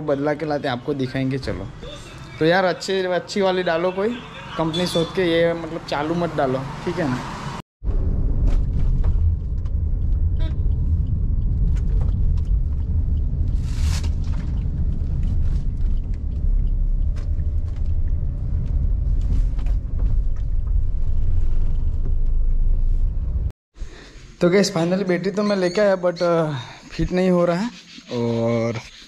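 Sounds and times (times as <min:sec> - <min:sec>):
car cabin road rumble: 0:07.8 - 0:23.5.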